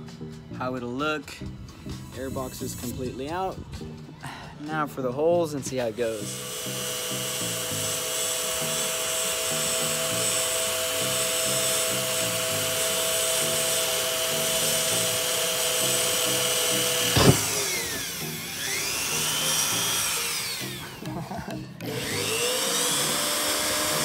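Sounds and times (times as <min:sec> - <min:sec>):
handheld drill boring metal: 0:05.5 - 0:24.0
sharp knock: 0:17.2 - 0:17.7.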